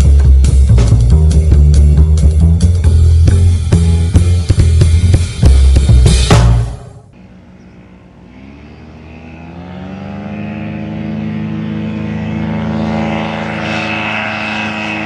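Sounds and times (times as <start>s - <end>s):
aircraft engine and propeller: 6.8s - 15.0s.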